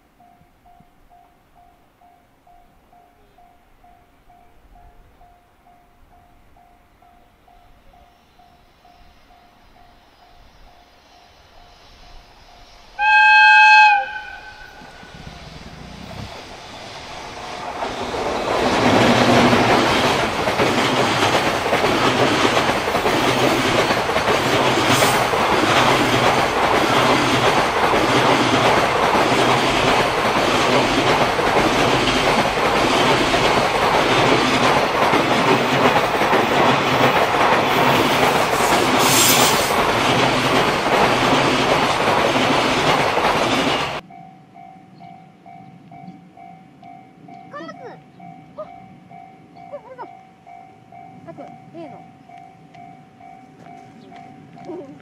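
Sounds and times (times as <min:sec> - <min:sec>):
locomotive horn blast: 0:13.0 - 0:15.1
train wagons rumbling: 0:14.1 - 0:55.0
wheels clickety-clack: 0:17.2 - 0:44.0.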